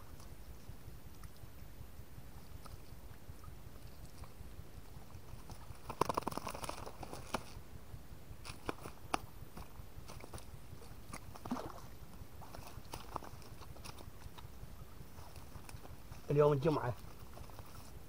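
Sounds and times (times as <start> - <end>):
net crackling and rustling: 5.2 - 7.6, 8.3 - 18.0
rapid clicks and slaps: 5.4 - 7.5.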